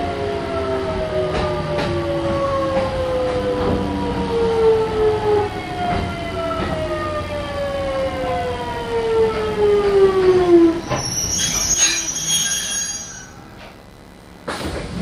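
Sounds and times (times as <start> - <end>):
high brake squeal: 10.8 - 13.4.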